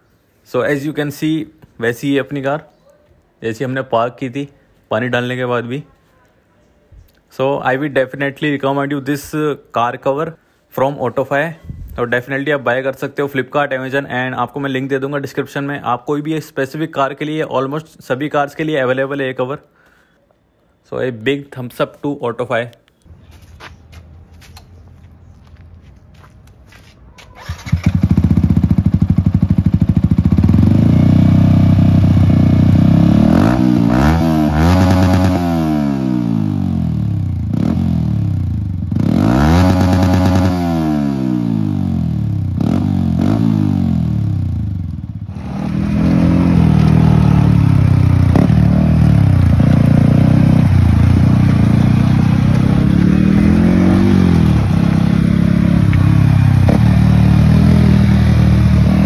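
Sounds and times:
motorcycle engine revving: 27.4s - 59.0s
motorcycle riding by: 27.4s - 59.0s.

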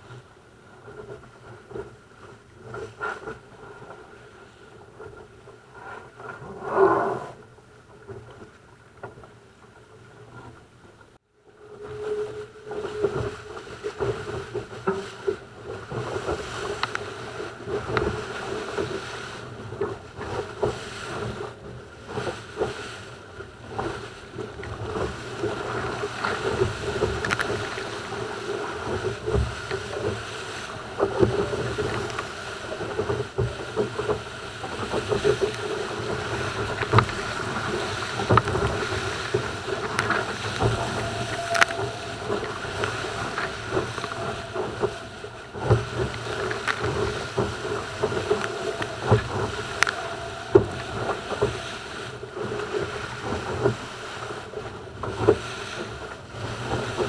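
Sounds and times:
hull slapping waves: 0.0s - 57.0s
water rushing past hull: 9.8s - 57.0s
wind buffeting microphone: 11.4s - 57.0s
steady hum: 34.2s - 54.6s.

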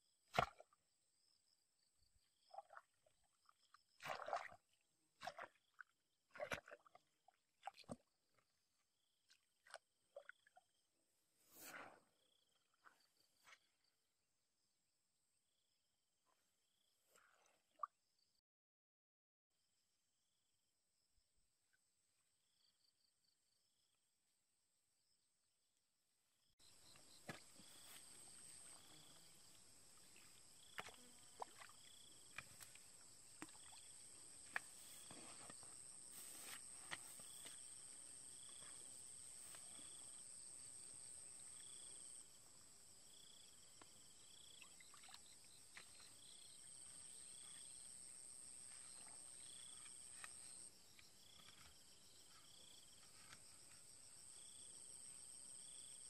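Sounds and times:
insects chirping: 26.6s - 56.0s.

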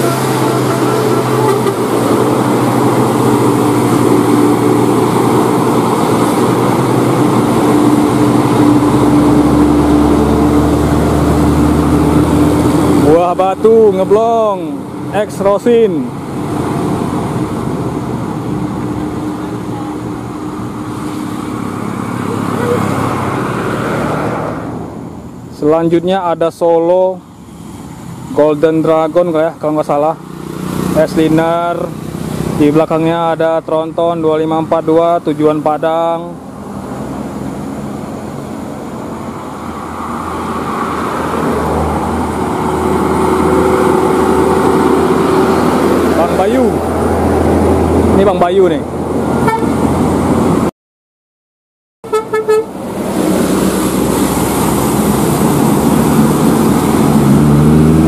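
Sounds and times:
bus engines climbing: 0.0s - 50.7s, 52.0s - 58.0s
cars and motorcycles passing: 0.0s - 50.7s, 52.0s - 58.0s
road noise: 0.0s - 50.7s, 52.0s - 58.0s.

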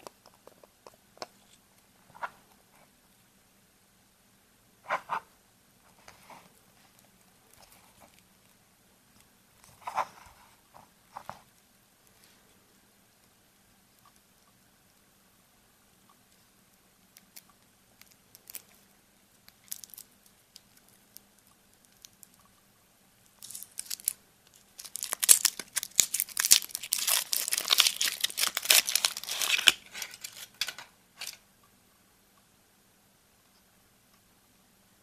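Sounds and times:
foil wrapper crinkling: 23.4s - 31.4s.

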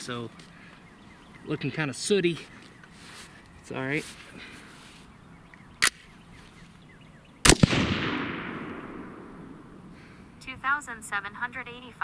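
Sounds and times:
rifle shot echoing: 7.4s - 10.2s.

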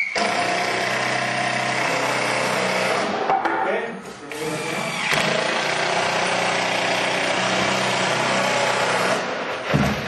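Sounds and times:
electric drill running under load: 4.3s - 9.2s.

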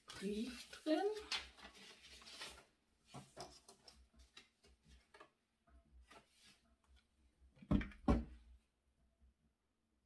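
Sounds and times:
paper rustling: 0.0s - 5.4s.

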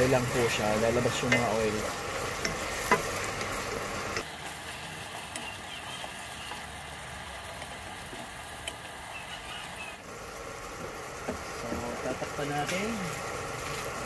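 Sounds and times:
food sizzling in a pan: 0.0s - 14.0s
utensil clacking on pan: 0.5s - 4.3s.

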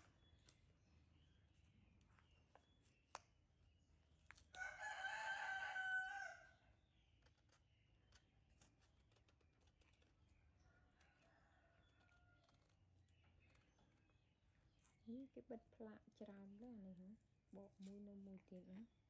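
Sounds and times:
faint distant rooster call: 4.5s - 6.7s, 10.6s - 12.8s
rooster crowing: 4.6s - 6.6s.

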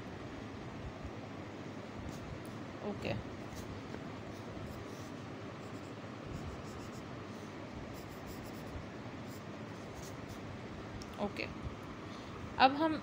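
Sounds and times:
pencil scratching on paper: 4.3s - 10.5s.

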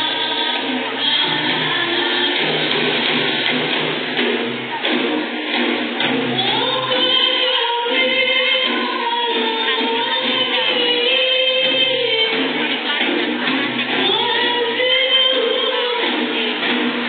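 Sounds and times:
women singing in unison: 0.0s - 3.2s, 6.3s - 16.6s
frame drums beating: 0.0s - 17.0s.

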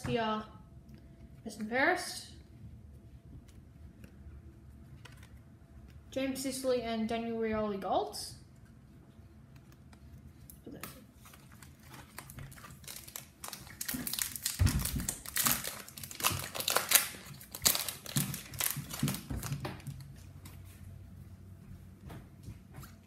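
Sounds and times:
wrapper crinkling: 11.0s - 20.3s.

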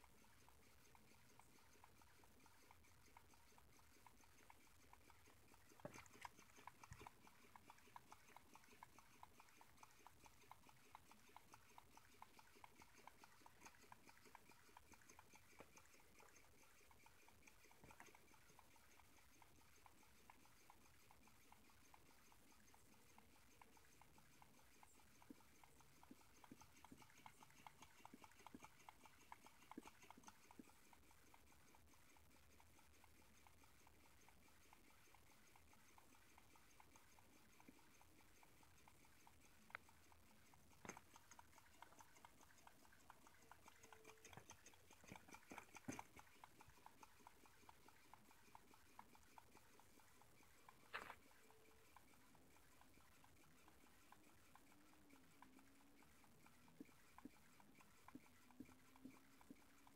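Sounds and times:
stirling engine ticking: 0.0s - 59.9s.

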